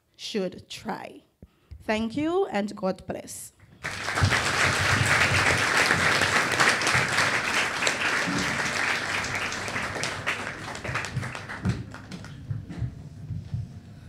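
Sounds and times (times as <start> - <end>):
children applauding: 3.8 - 12.5.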